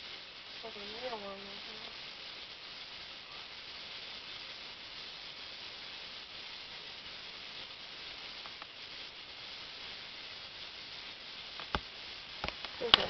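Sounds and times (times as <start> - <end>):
steady high hiss: 0.0 - 13.0
faint clicks: 11.6 - 13.0.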